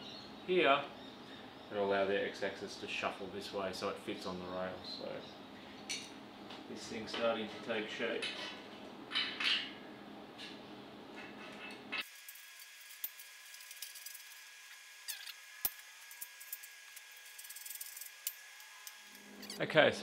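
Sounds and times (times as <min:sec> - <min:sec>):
metallic clicks and scrapes: 0:11.2 - 0:14.5, 0:15.1 - 0:19.6.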